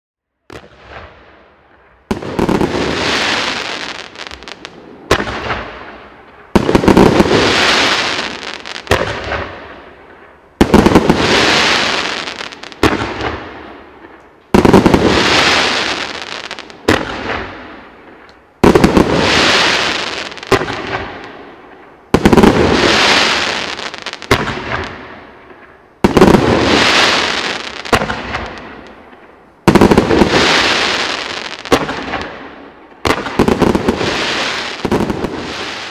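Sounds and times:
fireworks crackling: 0.5 - 35.9
fireworks volley popping: 6.5 - 9.5, 10.6 - 13.4, 14.5 - 17.5, 18.6 - 21.2, 22.1 - 32.4.

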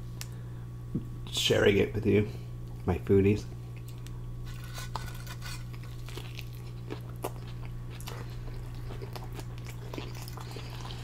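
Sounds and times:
steady low hum: 0.0 - 11.0
biting and chewing food: 3.7 - 11.0.

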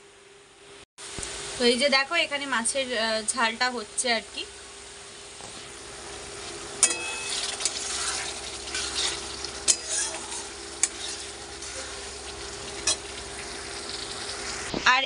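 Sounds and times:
curry sizzling in a pan: 1.0 - 15.0
spatula striking the pan: 6.8 - 7.7
spatula scraping a pan: 6.8 - 13.6.

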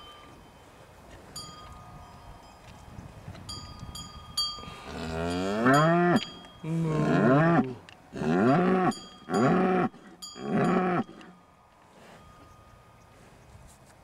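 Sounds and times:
cowbell clinking: 1.4 - 6.9, 8.8 - 11.2
cows mooing: 4.8 - 11.4.

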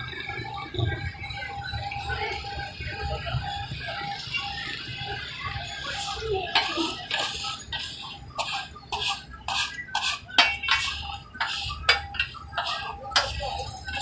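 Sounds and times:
metal spatula scraping griddle: 5.8 - 14.0.

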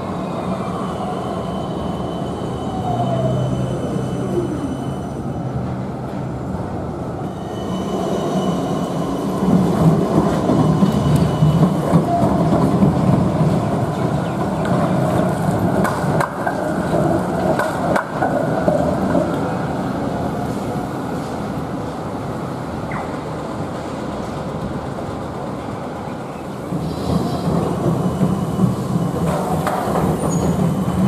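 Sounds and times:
tram rumbling past: 0.0 - 31.0
tram wheels clicking on track: 7.9 - 21.4, 22.8 - 31.0.

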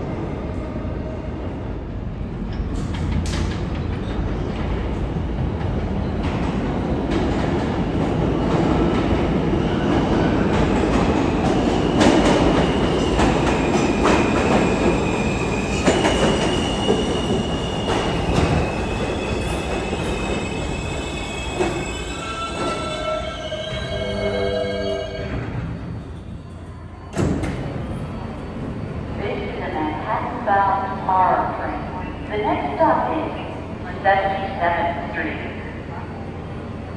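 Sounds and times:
train wheels rumbling on rail: 0.0 - 24.2
wheels and brakes squealing: 14.9 - 27.2.

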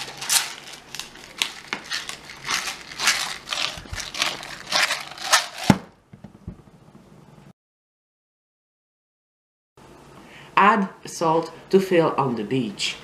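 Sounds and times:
pepper grinder grinding: 0.0 - 5.8.

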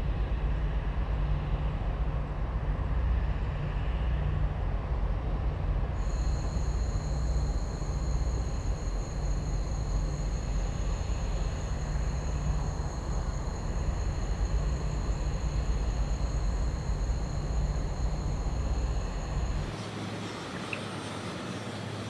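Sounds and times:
high-pitched whine: 6.0 - 21.0.

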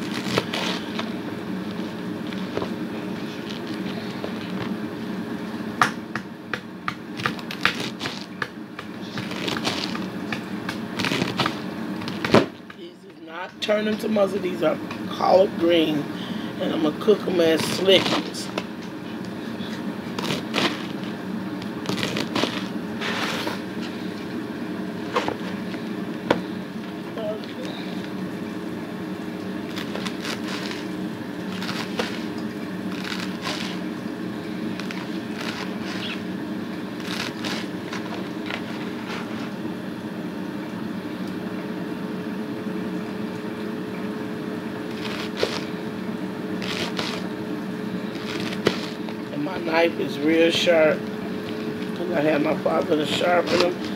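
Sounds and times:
knife slicing leaves: 0.0 - 1.1, 6.9 - 12.5, 17.5 - 18.7, 20.1 - 21.2, 21.8 - 23.7, 29.6 - 33.9, 34.7 - 36.2, 37.0 - 39.5, 44.9 - 45.8, 46.6 - 47.3, 48.1 - 49.2, 53.0 - 53.9
steady low hum: 0.0 - 53.9
leaves rustling: 29.6 - 33.9.

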